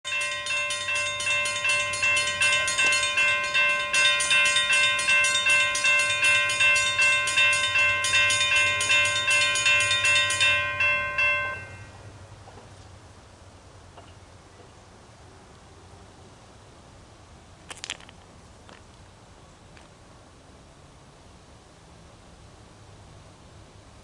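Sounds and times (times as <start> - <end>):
crossing bells ringing rapidly: 0.0 - 12.1.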